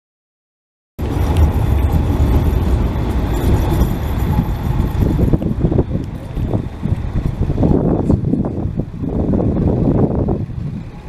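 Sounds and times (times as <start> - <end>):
road traffic: 1.0 - 11.0
tram rumbling past: 1.0 - 11.0.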